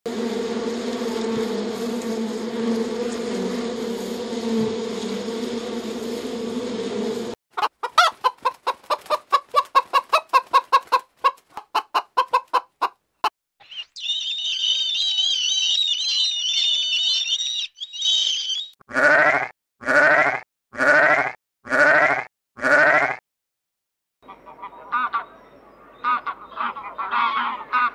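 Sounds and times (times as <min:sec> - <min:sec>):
bees buzzing: 0:00.1 - 0:07.4
hens clucking: 0:07.5 - 0:13.0
high warbling chirps: 0:13.6 - 0:18.8
sheep bleating: 0:18.9 - 0:23.2.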